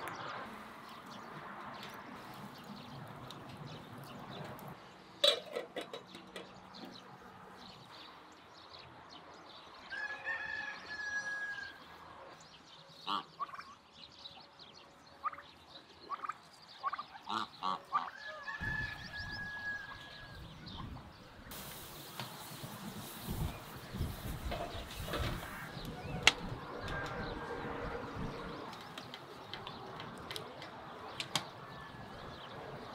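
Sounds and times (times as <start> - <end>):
rooster crowing: 9.9 - 11.8, 18.2 - 20.4.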